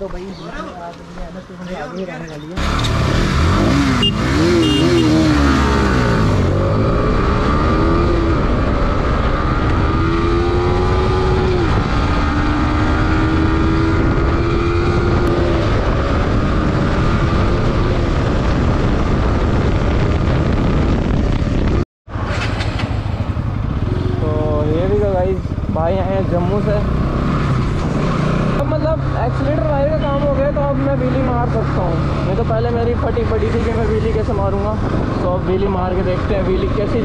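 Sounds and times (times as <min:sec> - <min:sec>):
motorcycle engine accelerating: 0:02.6 - 0:37.0
wind on microphone: 0:05.2 - 0:22.6, 0:33.7 - 0:37.0.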